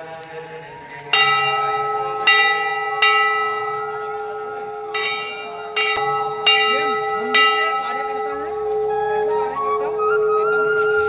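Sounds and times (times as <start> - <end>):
brass bell clanging: 1.1 - 9.0.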